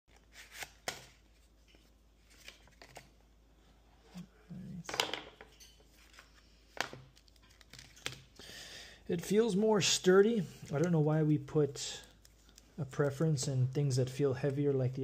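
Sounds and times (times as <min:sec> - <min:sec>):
papery rustle: 0:00.2 - 0:03.1.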